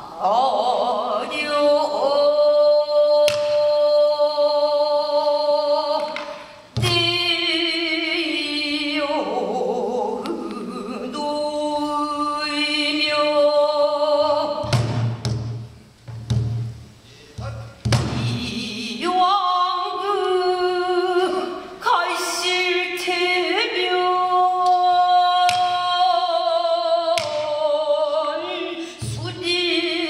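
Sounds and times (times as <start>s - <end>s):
woman singing long notes: 0.0s - 14.8s, 18.1s - 30.0s
barrel drum strokes: 14.6s - 18.7s.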